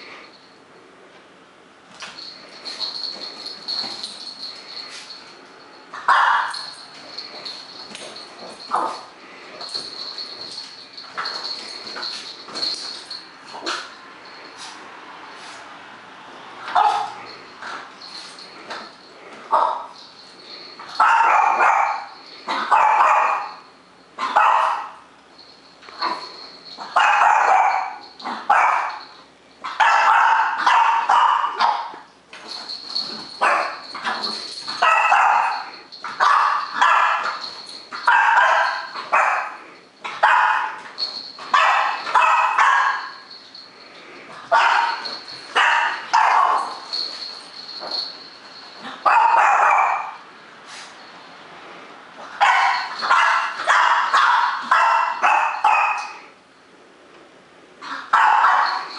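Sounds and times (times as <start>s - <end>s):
dog barking: 6.0s - 6.7s, 16.7s - 17.2s, 21.0s - 23.6s, 24.2s - 25.0s, 26.8s - 29.0s, 29.6s - 32.0s, 33.4s - 37.4s, 38.0s - 40.8s, 41.5s - 43.2s, 44.5s - 46.8s, 49.0s - 50.2s, 52.4s - 56.2s, 57.9s - 58.9s.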